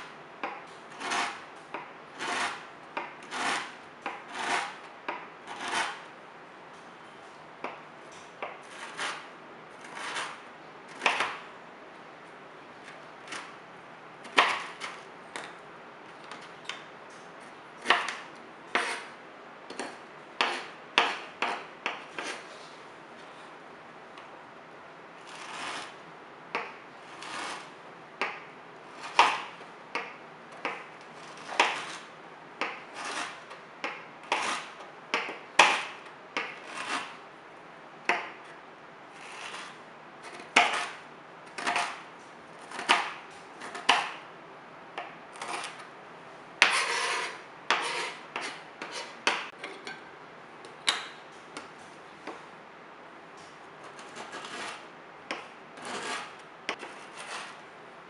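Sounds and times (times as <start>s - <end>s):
knife chopping on cutting board: 1.0s - 6.0s, 17.8s - 19.1s, 29.0s - 30.8s, 32.6s - 37.1s, 46.6s - 49.5s.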